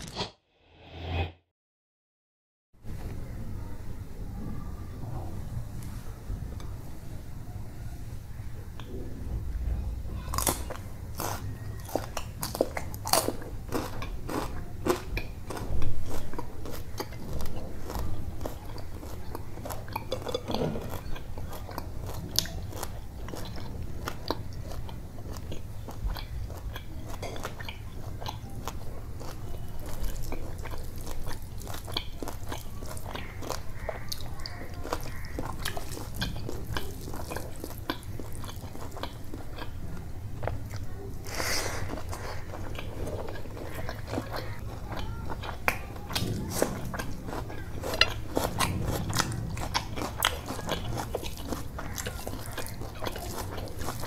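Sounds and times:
crunchy chewing: 10.1 - 54.0
fingers squishing rice: 10.4 - 39.8.

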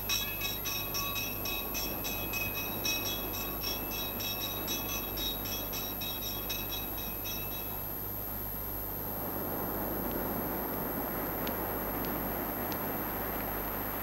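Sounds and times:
high tinkling clinks: 0.0 - 8.1.

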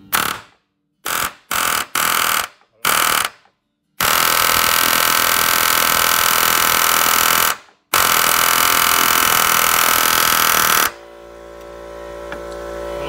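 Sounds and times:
pneumatic air hammer: 0.0 - 3.4, 4.0 - 11.0.

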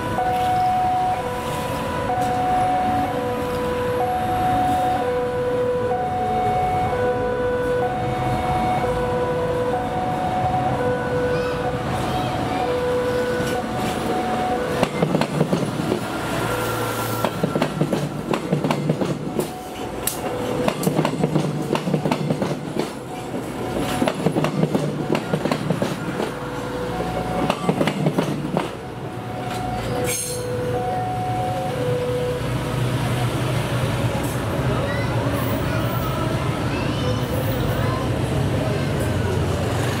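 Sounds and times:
two-note crossing alarm: 0.0 - 15.2, 19.1 - 21.2, 28.6 - 32.8
train wheels clattering: 14.7 - 16.2, 17.0 - 26.4, 27.0 - 28.8.

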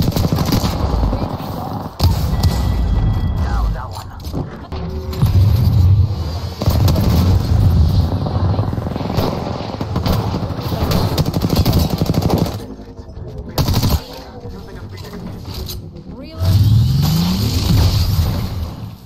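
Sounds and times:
rapid automatic gunfire: 0.0 - 2.2, 6.6 - 12.7, 13.6 - 14.2.

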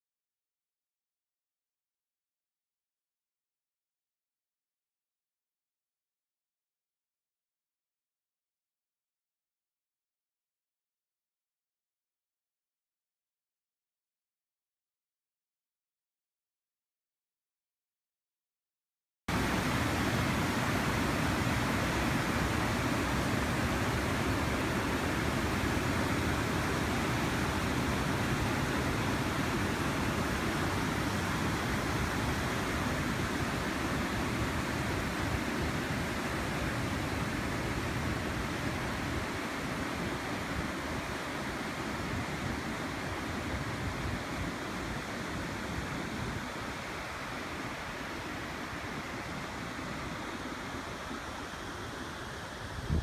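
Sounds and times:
water rushing over rocks: 19.3 - 53.0
wind rumble on microphone: 52.6 - 53.0.

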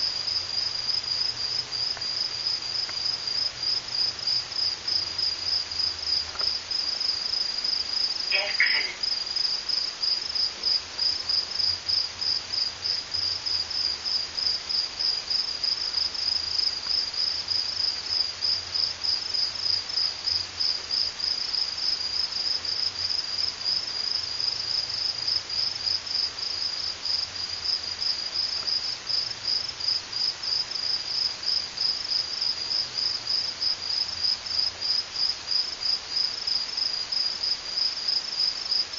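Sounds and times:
cricket chirping: 0.0 - 38.9.

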